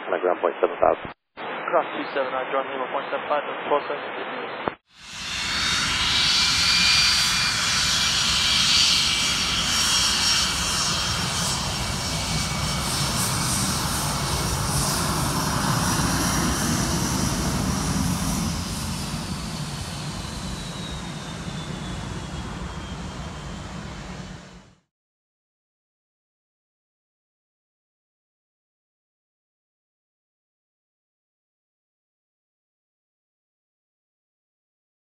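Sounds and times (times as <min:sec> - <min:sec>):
jet engines roaring on takeoff: 0:05.0 - 0:24.8
high jet engine whine: 0:05.0 - 0:24.9.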